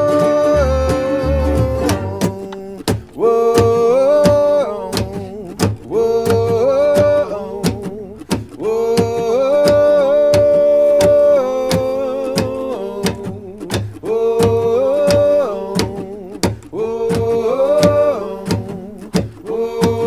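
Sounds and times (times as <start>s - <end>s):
sliding held lead notes: 0.0s - 2.7s
acoustic guitar: 0.0s - 20.0s
banjo: 0.0s - 20.0s
mandolin: 0.0s - 20.0s.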